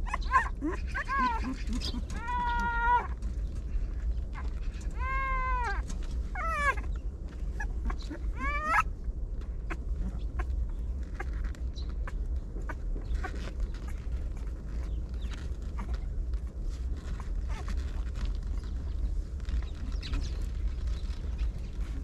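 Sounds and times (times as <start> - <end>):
puppies whining and crying: 0.0 - 9.0, 9.6 - 22.0
low rumble: 0.0 - 22.0
small clicks and scuffles: 5.6 - 8.1, 9.4 - 22.0.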